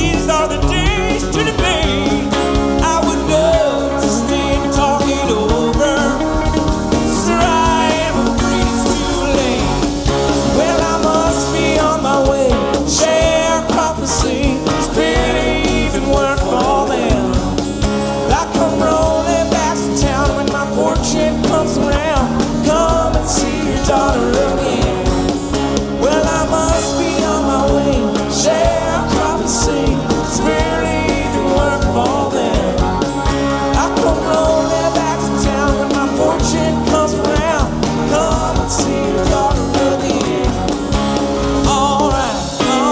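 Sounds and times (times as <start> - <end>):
bending lead guitar line: 0.0 - 42.9
drums: 0.0 - 42.9
electric and acoustic guitars: 0.0 - 42.9.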